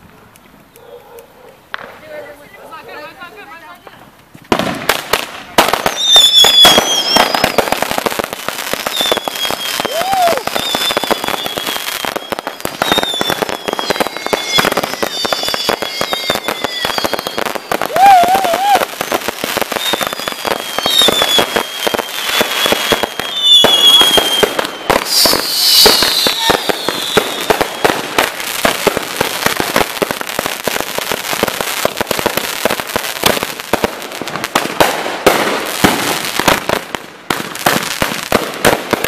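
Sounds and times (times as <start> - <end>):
firecrackers crackling and banging: 1.6 - 39.0
firework whistles falling in pitch: 5.8 - 7.8, 8.8 - 28.0.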